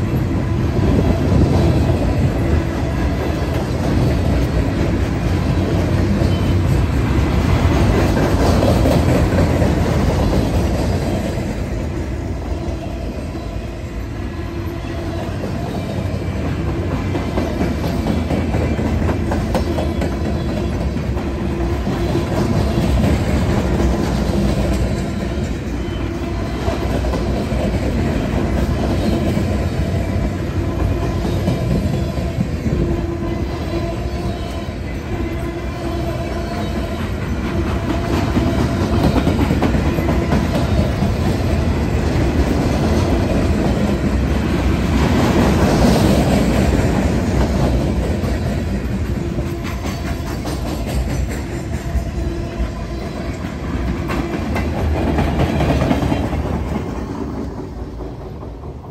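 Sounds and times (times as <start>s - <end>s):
clickety-clack over rail joints: 0.0s - 13.5s, 14.6s - 58.9s
train wheels rumbling on rail: 0.0s - 58.9s.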